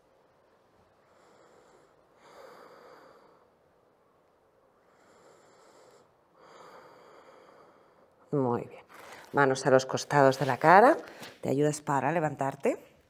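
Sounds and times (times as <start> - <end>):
faint slow breathing: 0.2 - 8.3, 8.9 - 9.4.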